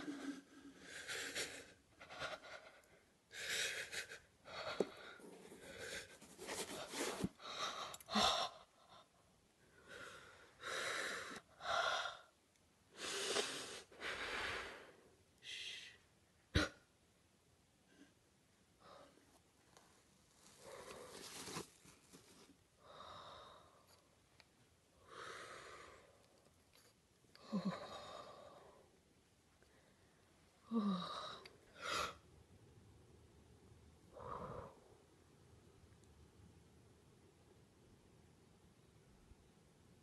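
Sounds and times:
soft rustling handling noises: 4.8s - 7.4s, 19.3s - 22.7s.

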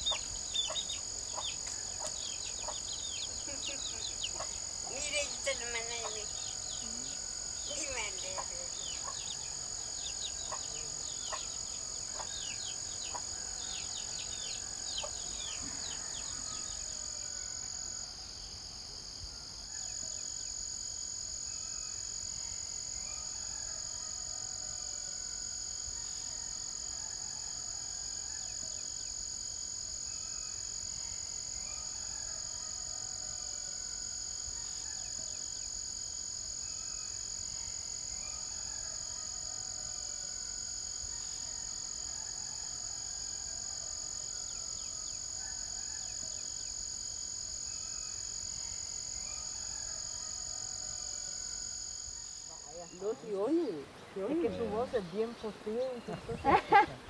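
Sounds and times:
birds chirping: 0.0s - 13.3s, 52.7s - 57.0s
insects trilling: 0.0s - 57.0s.

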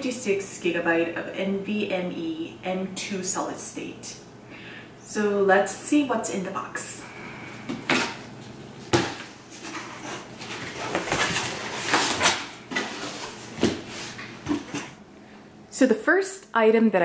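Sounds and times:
cardboard scraping and rustling: 8.8s - 15.0s.

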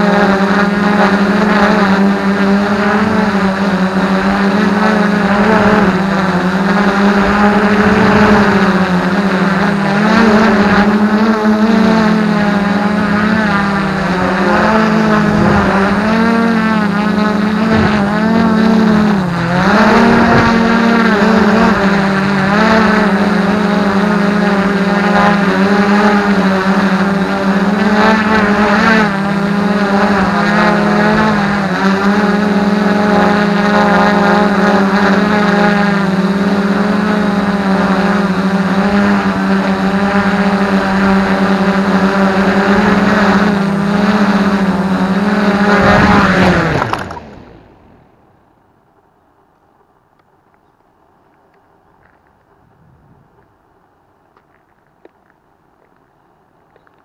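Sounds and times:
quadcopter motors buzzing: 0.0s - 48.3s.

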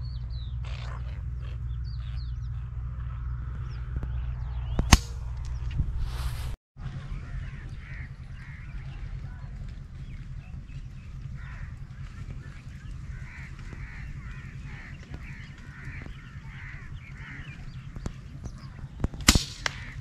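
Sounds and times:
birds calling: 0.0s - 5.8s, 6.8s - 20.0s
steady low rumble: 0.0s - 20.0s
loud gunshot: 19.2s - 20.0s.

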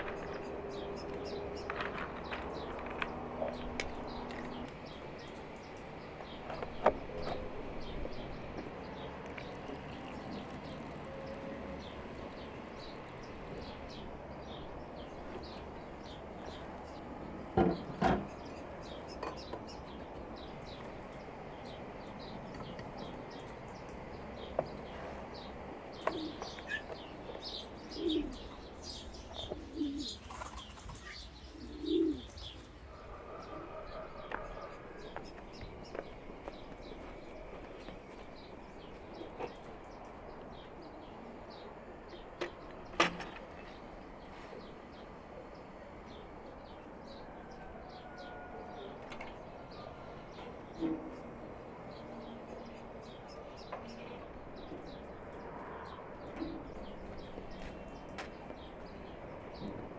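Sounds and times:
small birds chirping: 0.0s - 59.9s
pigeons cooing: 9.7s - 30.9s, 31.5s - 37.9s.

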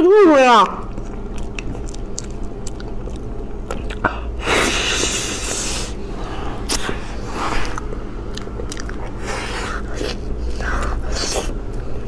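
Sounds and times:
people chewing pastry: 0.8s - 12.0s.

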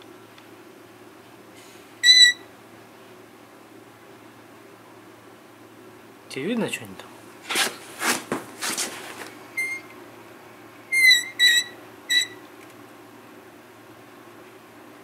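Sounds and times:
short high-pitched beeps: 2.0s - 2.4s.

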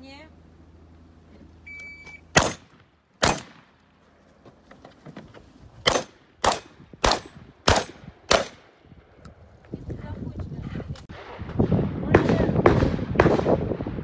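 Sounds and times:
shotgun shots with echo: 2.3s - 3.7s, 5.8s - 8.7s, 11.2s - 13.8s.

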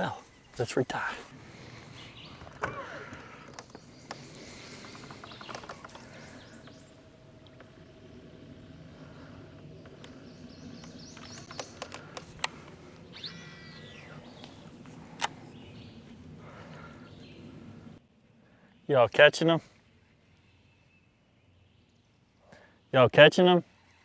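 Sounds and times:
faint steady hum: 0.0s - 22.9s
birds chirping: 0.0s - 24.0s
river ambience: 0.0s - 24.0s
sharp clicks: 9.8s - 13.5s.

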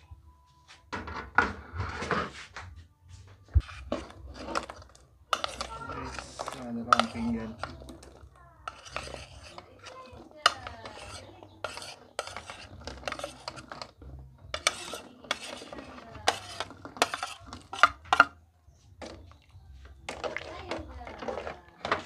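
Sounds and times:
metal spoon scraping a plate: 3.6s - 18.4s.

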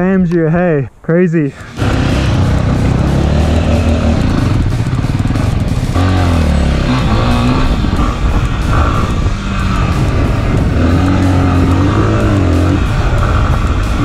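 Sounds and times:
wind noise: 0.0s - 14.0s
dirt bike engine revving: 1.6s - 14.0s.

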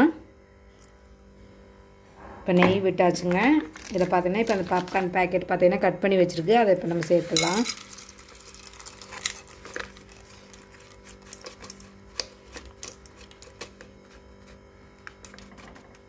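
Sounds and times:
faint steady hum: 0.0s - 16.0s
kernels clicking into metal pot: 7.3s - 13.7s.

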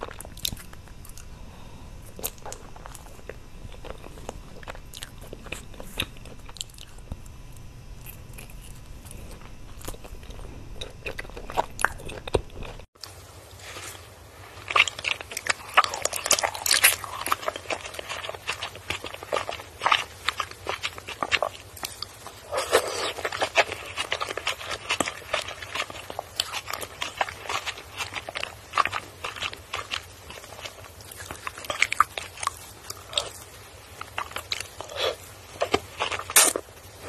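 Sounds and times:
sharp bite: 36.3s - 36.6s.

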